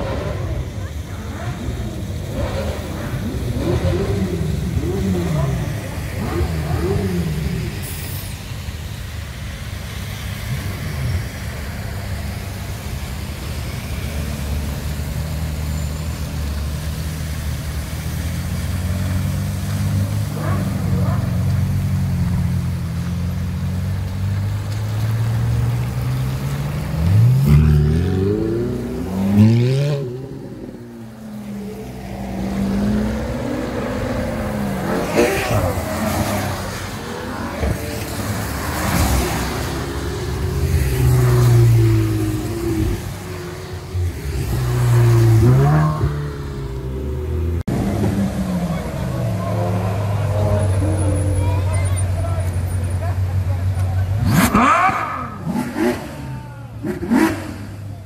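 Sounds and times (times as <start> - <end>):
sports car engines rumbling: 0.0 - 58.0
car accelerating away: 17.6 - 58.0.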